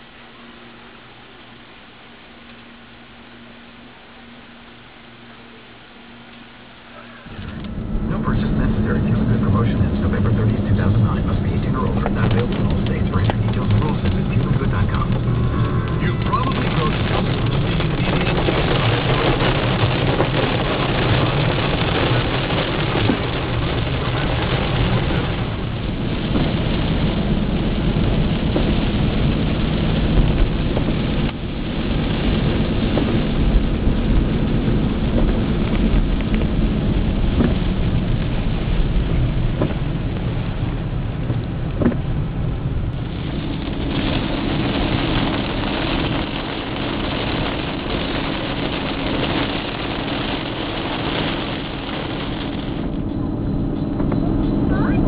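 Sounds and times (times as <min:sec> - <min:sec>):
road and engine rumble: 0:00.0 - 0:55.0
rain beating on car: 0:05.5 - 0:55.0
heavy raindrops ticking: 0:07.3 - 0:55.0.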